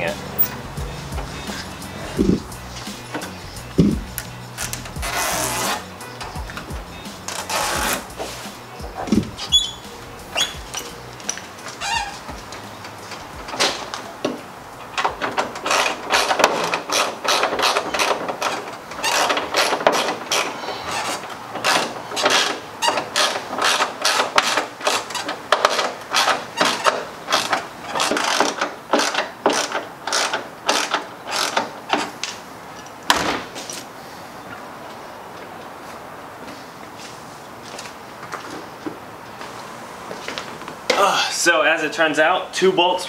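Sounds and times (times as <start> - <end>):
ratchet wrench clicking: 27.3 - 31.7.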